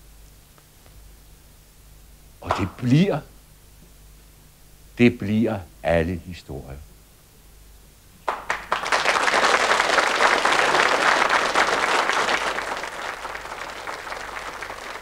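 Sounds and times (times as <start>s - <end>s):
audience applauding: 2.4s - 2.9s, 8.2s - 15.0s
single claps: 2.4s - 2.9s, 8.2s - 15.0s.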